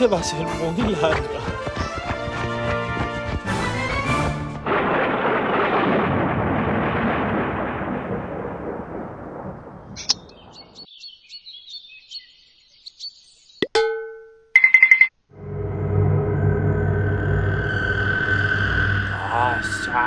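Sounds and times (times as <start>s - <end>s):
birds chirping: 0.0s - 3.0s, 9.8s - 13.8s
deep rumble: 4.0s - 10.4s, 15.3s - 20.0s.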